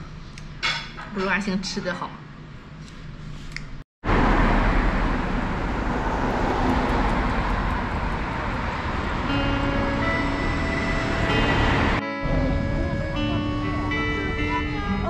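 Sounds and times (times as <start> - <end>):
heavy low rumble: 4.0 - 15.0
road traffic rush: 4.0 - 15.0.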